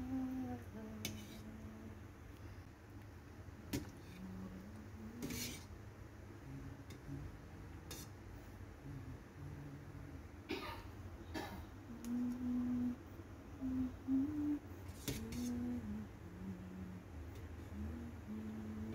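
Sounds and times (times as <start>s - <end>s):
faint low humming: 0.0s - 18.9s
ladle scraping a metal pot: 5.2s - 5.7s.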